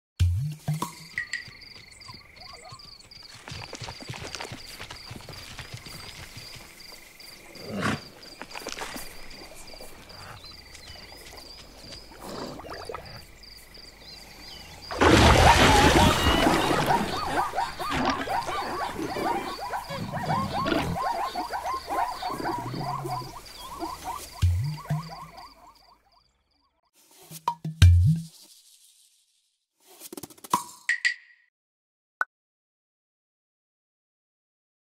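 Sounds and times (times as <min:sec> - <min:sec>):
insect hum: 0:00.5 - 0:27.4
animals drinking water: 0:07.9 - 0:13.8, 0:14.4 - 0:25.3
loud water splash: 0:14.9 - 0:17.6
frantic animal cries: 0:15.1 - 0:25.4.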